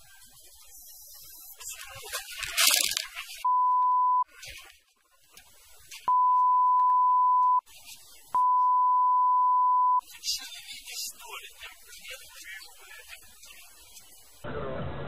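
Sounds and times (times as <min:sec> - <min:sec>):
censor bleep tone: 0:03.4 - 0:04.2, 0:06.1 - 0:07.6, 0:08.4 - 0:10.0.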